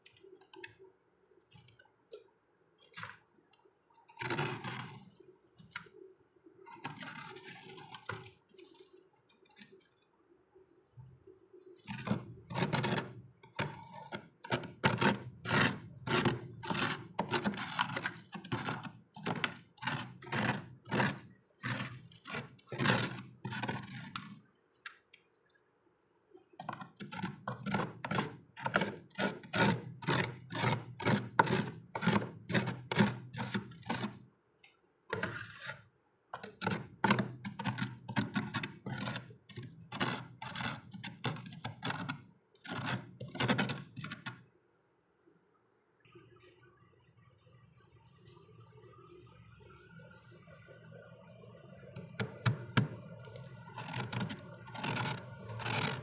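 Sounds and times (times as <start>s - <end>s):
plastic spoon scraping frost: 4.0s - 6.0s, 6.6s - 10.0s, 11.8s - 25.6s, 26.6s - 44.4s, 52.0s - 56.0s.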